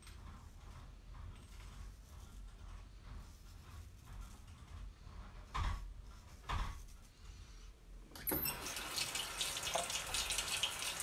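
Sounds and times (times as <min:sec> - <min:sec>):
sink tap water running: 0:08.2 - 0:11.0.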